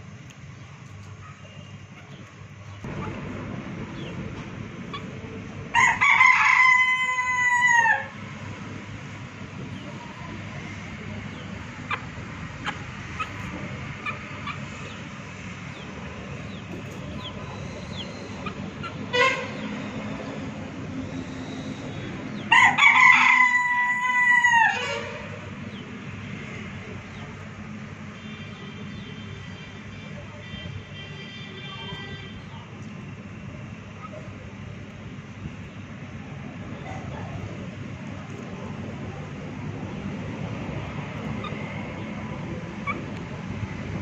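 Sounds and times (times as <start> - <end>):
rooster crowing: 5.7 - 8.2, 22.3 - 25.2
faint chicken calls: 21.1 - 25.8.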